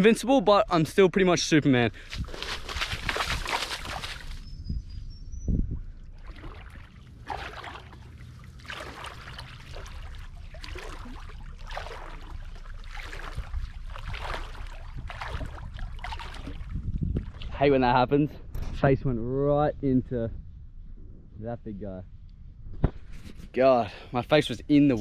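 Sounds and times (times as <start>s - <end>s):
footsteps wading through water and mud: 1.9s - 4.6s, 5.9s - 17.6s
water sloshing splash: 2.1s - 4.5s, 5.8s - 17.6s.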